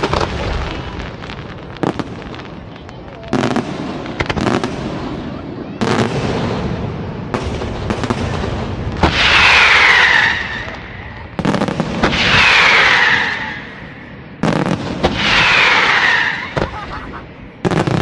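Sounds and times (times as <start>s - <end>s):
firework hissing whistle: 9.0s - 11.3s, 12.0s - 14.2s, 15.0s - 16.8s.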